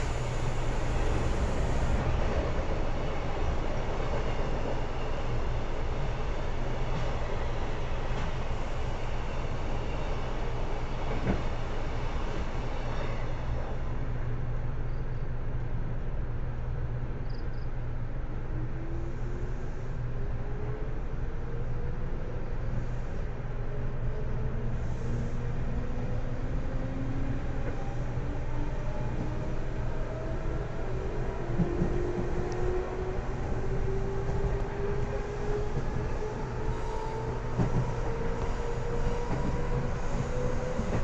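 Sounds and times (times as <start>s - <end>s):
train wheels and motors rumbling: 24.1s - 41.0s.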